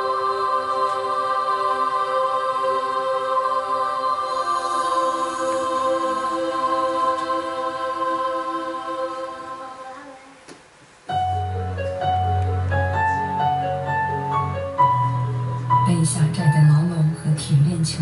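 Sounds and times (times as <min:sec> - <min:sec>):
choir-like film music: 0:00.0 - 0:10.4
bass and slow melody: 0:11.1 - 0:18.0.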